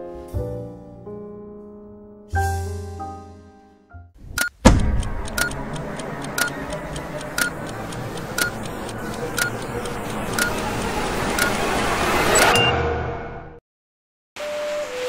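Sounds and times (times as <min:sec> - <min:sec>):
countdown timer beeping: 0:04.4 - 0:11.6
loud hit: 0:04.6 - 0:05.4.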